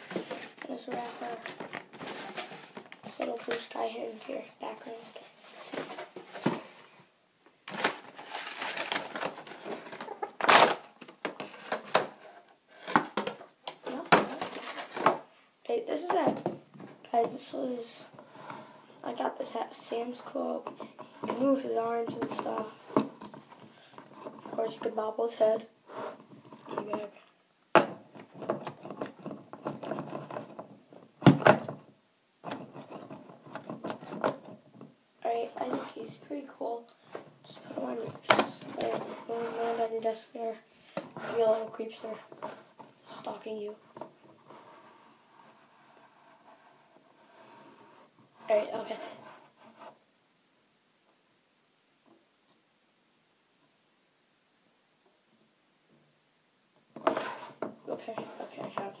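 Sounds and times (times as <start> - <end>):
plastic packaging crackling: 7.6 - 12.2.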